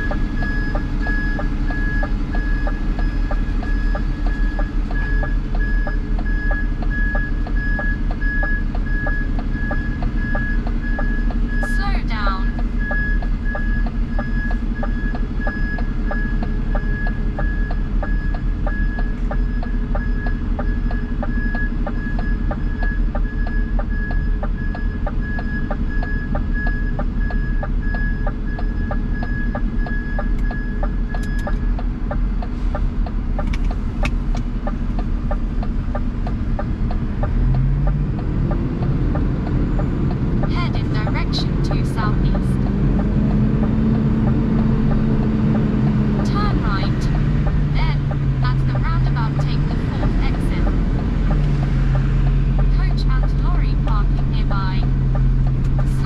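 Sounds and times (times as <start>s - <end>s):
electronic beeps: 0.0s - 31.7s
diesel engine idling: 0.0s - 56.0s.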